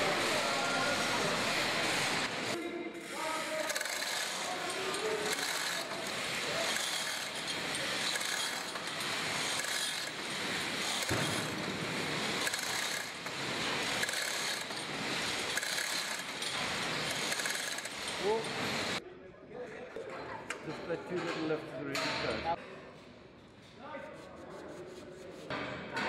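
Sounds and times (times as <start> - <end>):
ratchet clicking: 3.6 - 11.6, 12.3 - 18.5.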